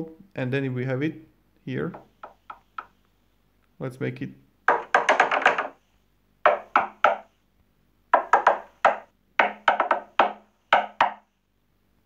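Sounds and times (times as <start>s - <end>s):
sharp knocks on a door: 2.0s - 2.9s, 4.7s - 5.8s, 6.4s - 7.3s, 8.1s - 11.3s.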